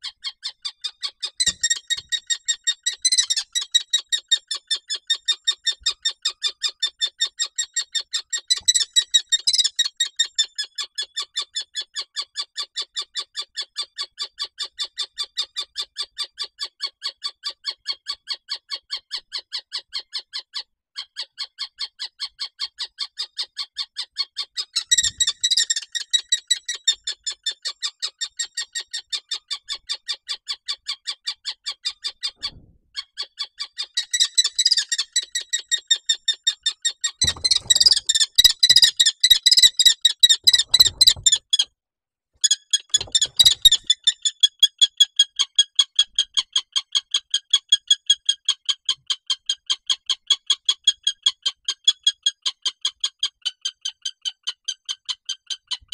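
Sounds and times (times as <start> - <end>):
kestrel alarm calls: 24.7 - 26.9, 34.0 - 35.5, 37.2 - 41.4, 42.8 - 44.3
thumps and scuffling: 37.2 - 38.1, 40.4 - 41.4.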